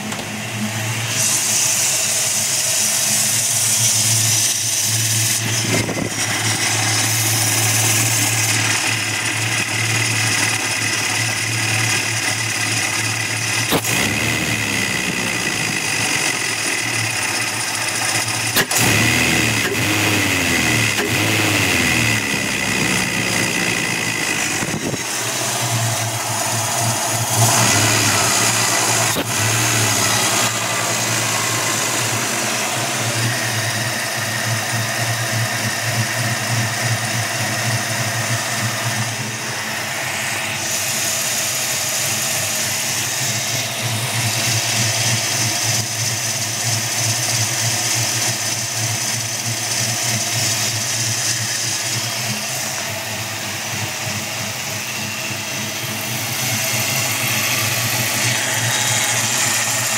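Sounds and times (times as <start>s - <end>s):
high belt whine: 0.0s - 18.9s, 20.8s - 45.5s, 51.2s - 59.9s
car engine idling: 0.0s - 59.9s.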